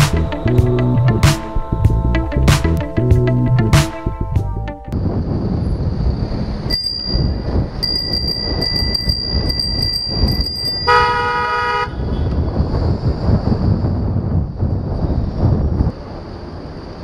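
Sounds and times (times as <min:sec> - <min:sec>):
wind and road rumble: 0:00.0 - 0:17.0
two-tone bicycle horn blast: 0:10.9 - 0:12.0.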